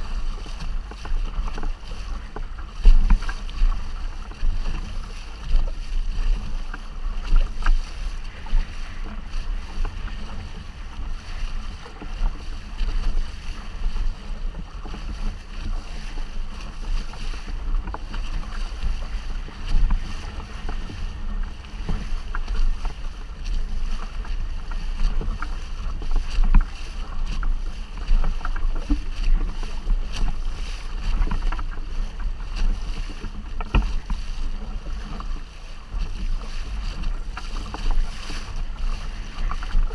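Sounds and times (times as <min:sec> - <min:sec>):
water splashing along hull: 0:00.0 - 0:39.9
wind buffeting microphone: 0:00.0 - 0:39.9
small ticks and knocks: 0:00.4 - 0:05.8, 0:24.0 - 0:29.6, 0:31.1 - 0:34.2.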